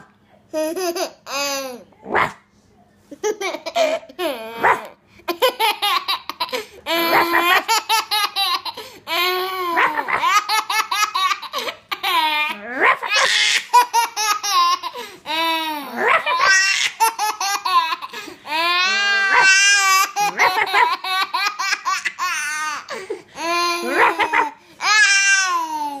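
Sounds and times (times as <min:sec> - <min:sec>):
baby laughing: 0:03.2 - 0:26.0.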